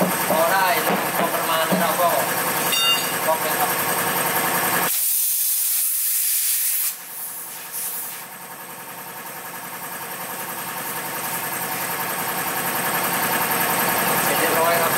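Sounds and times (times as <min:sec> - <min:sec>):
compressed air hissing at tyre valve: 0:04.9 - 0:08.3.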